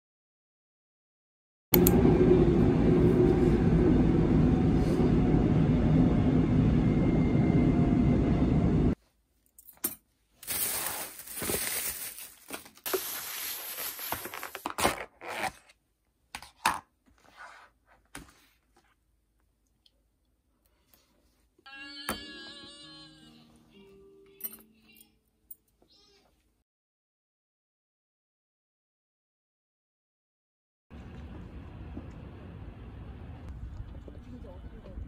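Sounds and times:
train rumbling: 1.8s - 9.0s, 31.0s - 35.0s
plastic bag rustling: 10.4s - 14.7s.

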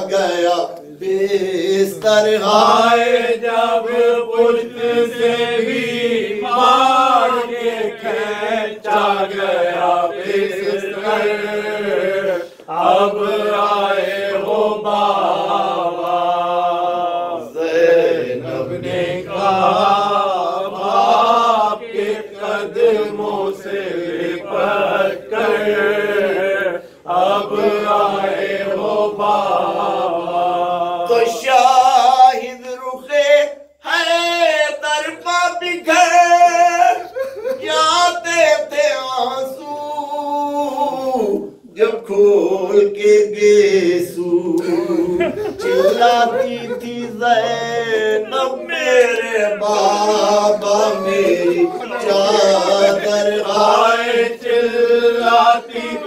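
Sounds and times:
men chanting a lament: 0.0s - 56.0s
man singing into a microphone: 31.1s - 53.9s.

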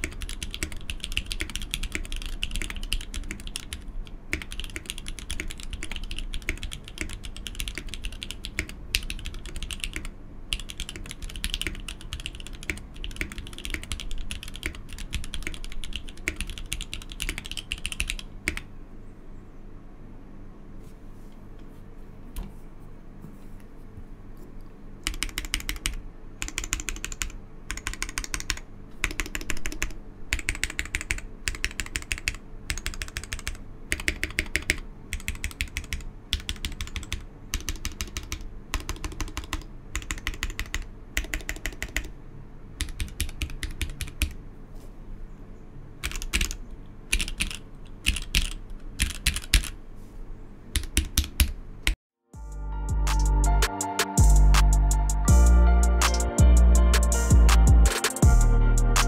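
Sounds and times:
mechanical keyboard keys pressed: 0.0s - 18.7s, 25.0s - 42.1s, 42.8s - 44.4s, 46.0s - 49.8s, 50.8s - 51.6s.

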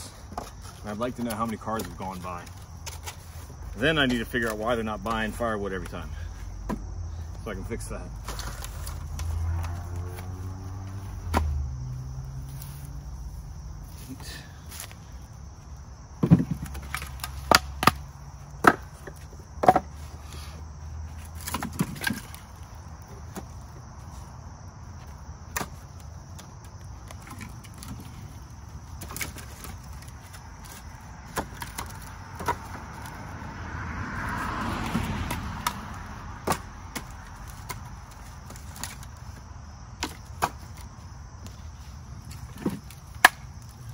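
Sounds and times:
crickets chirring: 0.0s - 43.9s
passing vehicle: 4.9s - 16.1s, 29.8s - 39.9s
firewood knocking and clattering: 16.2s - 19.9s, 21.3s - 22.5s, 28.9s - 33.2s.

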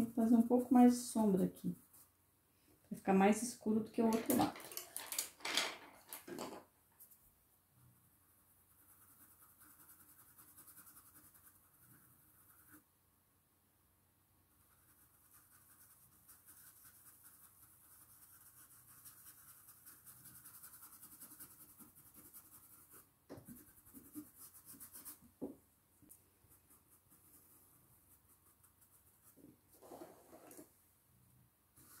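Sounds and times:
brush bristles scratching fabric: 8.2s - 12.8s, 14.6s - 25.3s, 26.4s - 30.6s, 31.8s - 32.0s.

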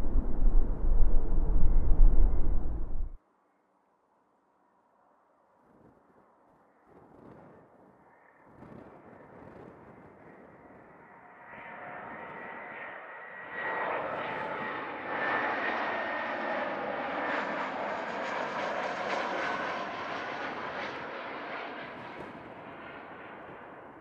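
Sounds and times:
jet airliner passing: 0.0s - 3.2s, 11.0s - 24.0s.

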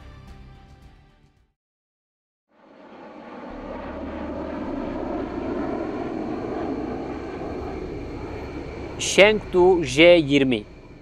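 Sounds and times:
jet fighter engines roaring: 2.6s - 11.0s.

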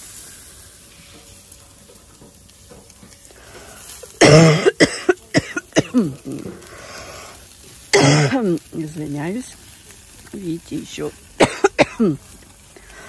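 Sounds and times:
faint steady hiss: 0.0s - 13.0s
woman coughing: 4.2s - 6.5s, 7.9s - 8.5s, 11.4s - 12.2s.

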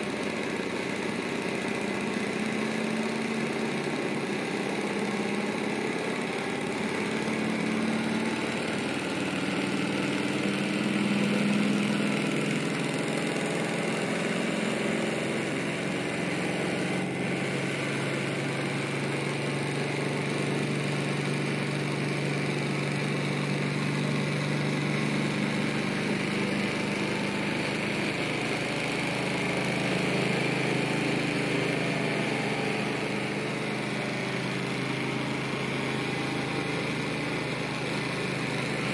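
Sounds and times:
stirling engine humming: 15.3s - 38.9s.

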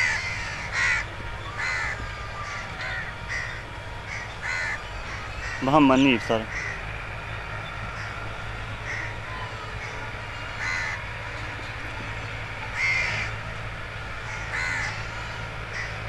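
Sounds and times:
crows cawing: 0.0s - 16.0s.

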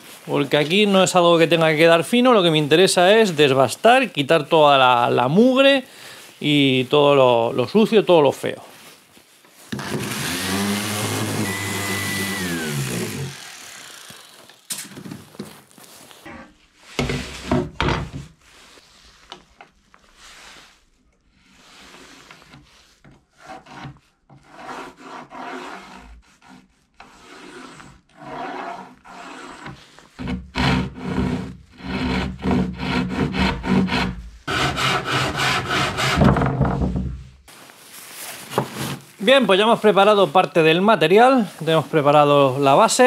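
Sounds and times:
orbital sander grinding wood: 9.7s - 14.7s.

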